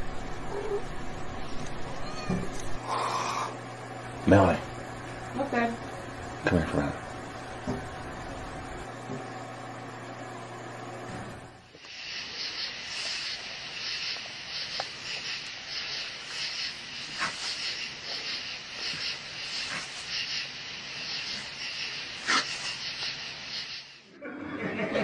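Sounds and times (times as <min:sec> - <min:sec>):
insects chirping: 0:00.0 - 0:09.0, 0:11.6 - 0:24.1.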